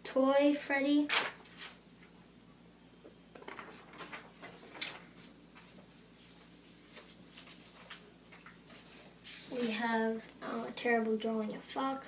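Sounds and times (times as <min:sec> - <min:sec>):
paper rustling: 0:03.5 - 0:09.8.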